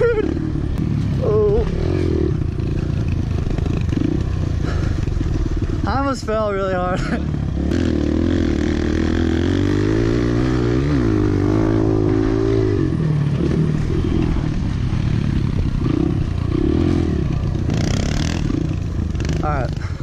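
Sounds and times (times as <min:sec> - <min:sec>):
motorcycle engine under throttle: 0:00.0 - 0:20.0.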